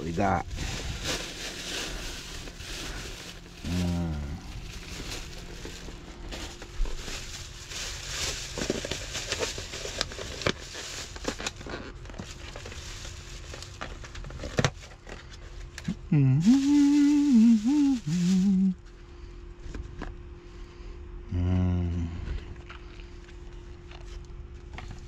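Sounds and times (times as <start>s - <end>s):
plastic bag rustling: 0.0s - 15.7s, 16.4s - 18.8s
man humming: 3.6s - 5.4s, 15.8s - 18.8s, 21.3s - 22.6s.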